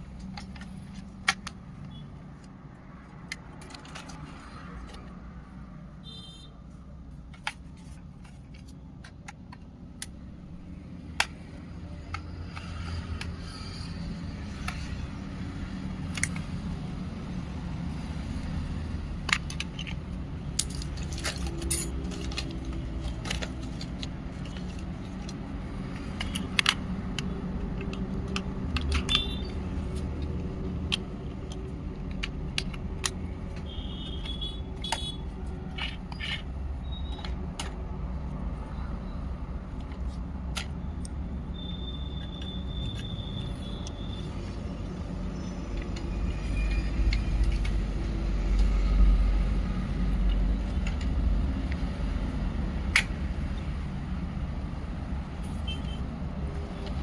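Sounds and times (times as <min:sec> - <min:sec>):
plastic clicks and rattles: 0:00.0 - 0:05.3, 0:07.2 - 0:17.0, 0:17.9 - 0:38.6, 0:39.6 - 0:44.6.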